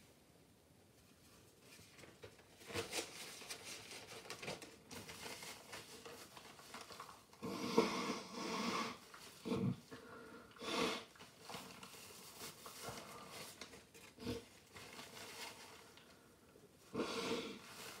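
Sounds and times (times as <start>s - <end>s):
paper towel rustling: 1.2s - 7.4s, 11.2s - 16.4s, 17.6s - 18.0s
person blowing nose: 7.4s - 9.7s, 10.6s - 11.2s, 16.9s - 17.8s.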